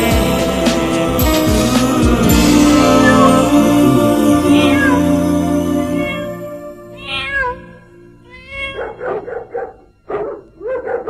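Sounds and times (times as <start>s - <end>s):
song music: 0.0s - 8.3s
dog whining: 8.4s - 11.0s
dog yelping: 8.4s - 11.0s.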